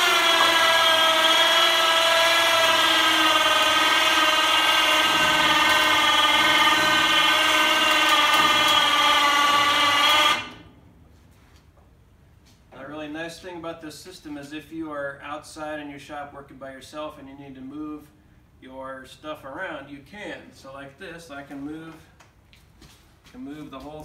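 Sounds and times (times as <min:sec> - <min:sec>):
electric winch motor whining: 0:00.0 - 0:10.8.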